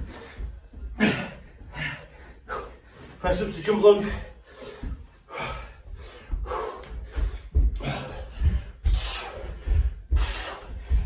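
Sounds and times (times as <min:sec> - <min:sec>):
heavy breathing: 0:00.0 - 0:11.0
feet thudding on carpet: 0:05.8 - 0:11.0.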